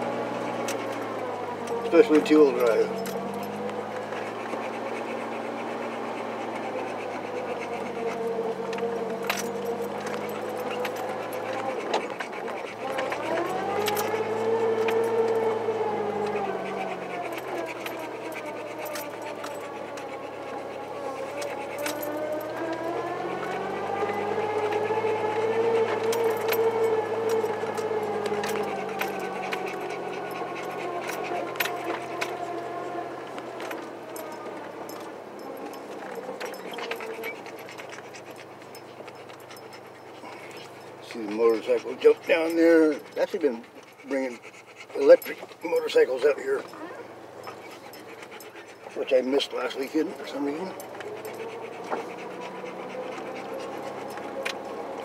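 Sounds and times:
truck engine running: 0:00.0 - 0:55.0
body rattles: 0:00.4 - 0:32.5.

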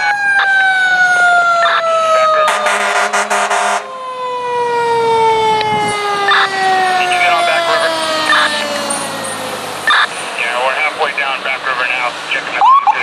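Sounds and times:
mechanical siren falling wail: 0:00.0 - 0:10.1
truck air horn blast: 0:02.5 - 0:03.9.

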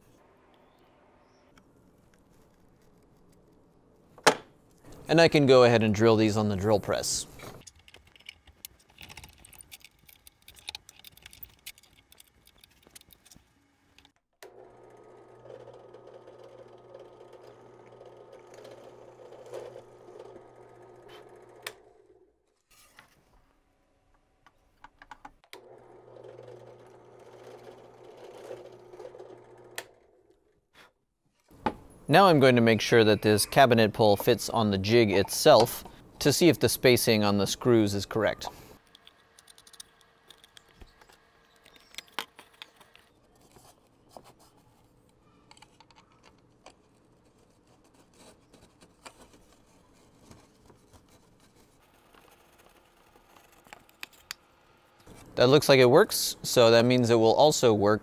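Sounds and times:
small metal clicks and scrapes: 0:07.6 - 0:14.2, 0:38.8 - 0:43.9, 0:45.0 - 0:54.4
drill press motor humming: 0:14.0 - 0:22.3, 0:25.5 - 0:30.5.

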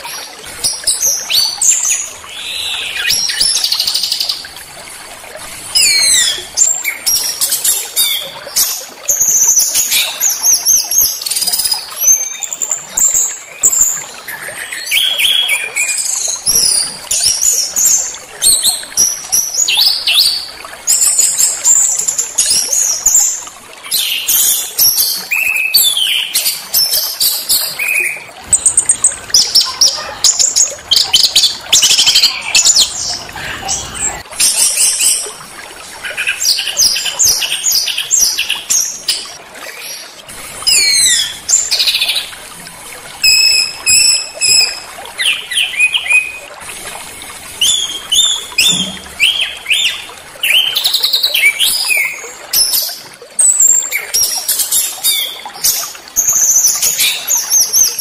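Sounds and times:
small songbirds singing: 0:00.0 - 0:04.5, 0:05.7 - 0:35.4.

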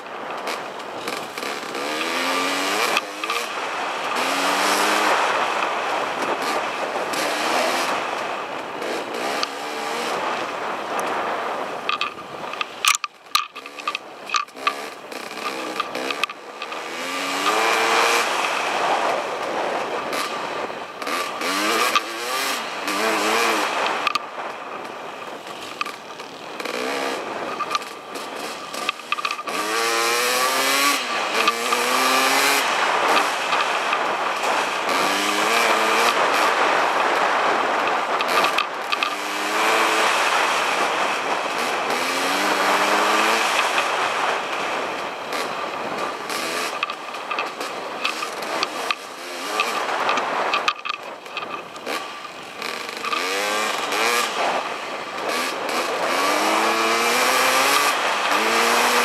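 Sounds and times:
dirt bike engine accelerating: 0:00.0 - 0:59.0
wind on camera: 0:00.0 - 0:59.0.

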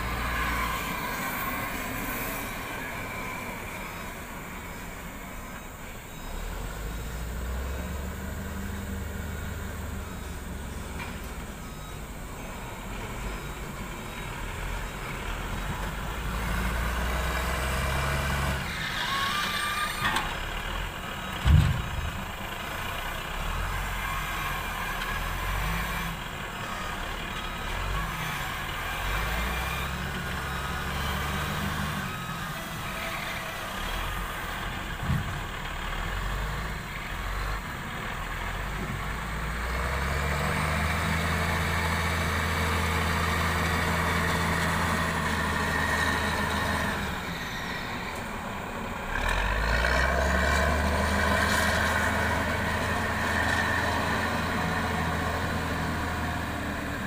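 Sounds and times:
heavy diesel engine revving: 0:11.8 - 0:57.0.

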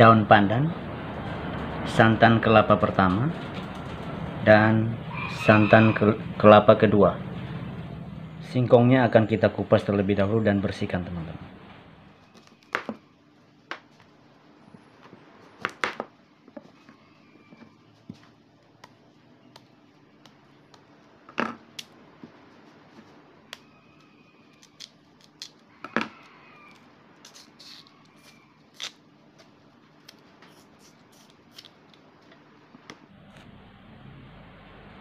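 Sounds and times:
skin pulled off snapping: 0:24.6 - 0:25.6.

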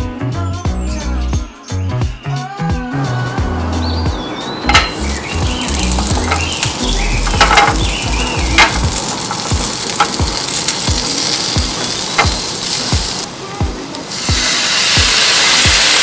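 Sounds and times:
dumplings sizzling in hot oil: 0:04.7 - 0:16.0.

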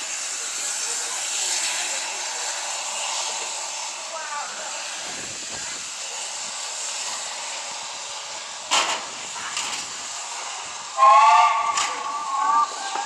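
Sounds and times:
burst of steam: 0:00.0 - 0:13.0
steam locomotive hissing: 0:00.0 - 0:13.0
steam whistle chord: 0:11.0 - 0:13.0.

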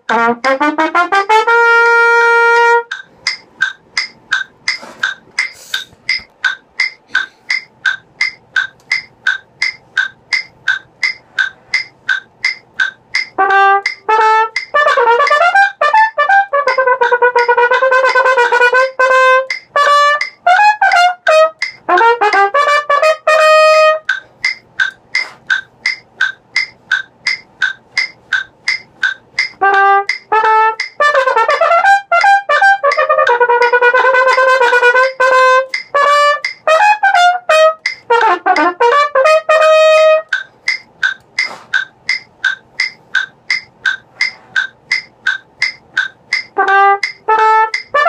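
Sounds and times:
metronome ticking: 0:00.0 - 0:48.0
solo trumpet playing: 0:00.1 - 0:03.0, 0:13.4 - 0:24.1, 0:29.6 - 0:40.3, 0:46.6 - 0:48.0.

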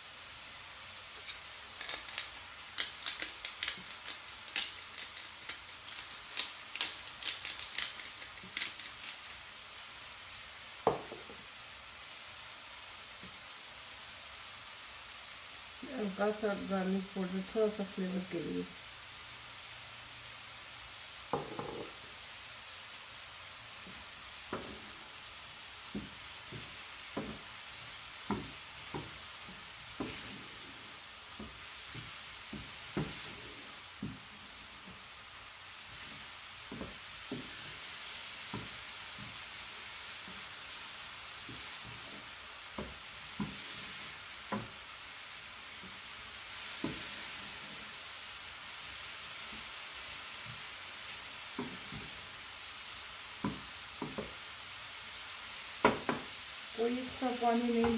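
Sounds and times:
mushrooms sizzling in a frying pan: 0:00.0 - 0:57.9
spatula knocking and scraping pan: 0:01.2 - 0:09.4, 0:10.8 - 0:11.4, 0:21.3 - 0:22.0, 0:23.8 - 0:25.1, 0:25.8 - 0:35.1, 0:35.8 - 0:39.5, 0:41.4 - 0:44.8, 0:51.6 - 0:52.2, 0:53.4 - 0:54.4, 0:55.8 - 0:56.3, 0:57.4 - 0:57.9.

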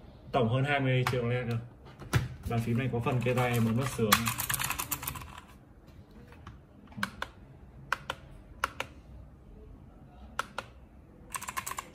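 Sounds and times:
mechanical keyboard keys clicking: 0:11.3 - 0:11.9.

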